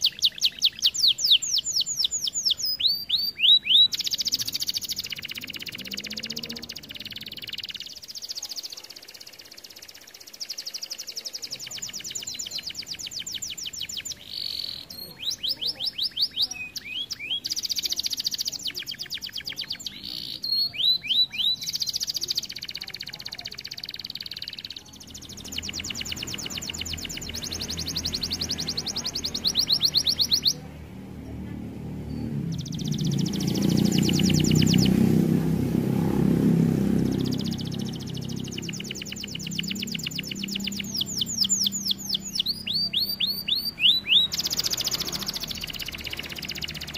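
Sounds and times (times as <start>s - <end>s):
canary singing trills: 0.0s - 46.9s.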